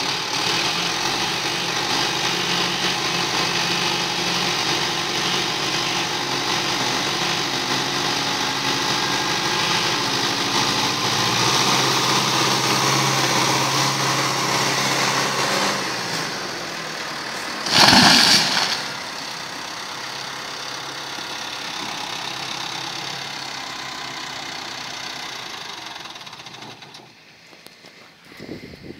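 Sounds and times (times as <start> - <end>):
chainsaw cutting and idling: 17.6 - 19.4
tree crashing to the ground: 17.7 - 19.2.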